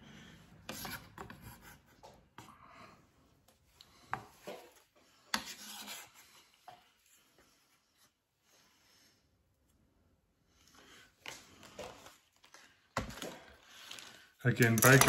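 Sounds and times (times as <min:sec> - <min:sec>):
utensil scraping a pan: 0:00.6 - 0:01.9, 0:04.1 - 0:06.9.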